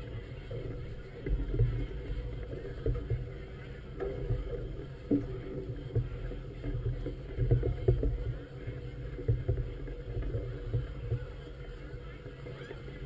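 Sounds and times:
water slapping against a hull: 0:00.0 - 0:13.0
wind rumble on microphone: 0:00.0 - 0:13.0.

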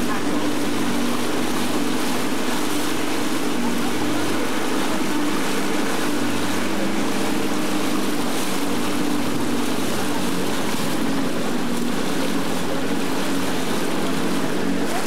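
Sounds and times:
hiss of water and wind: 0:00.0 - 0:15.0
motorboat engine humming: 0:00.0 - 0:15.0.

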